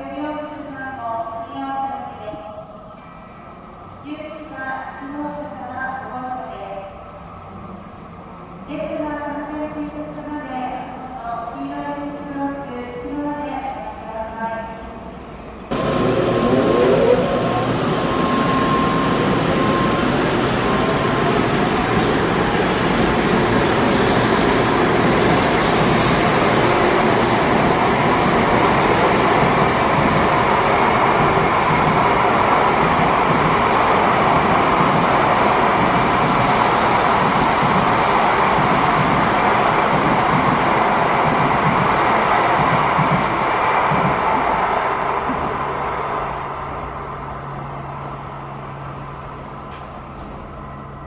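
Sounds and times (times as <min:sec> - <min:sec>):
train rushing past: 0:15.2 - 0:51.0.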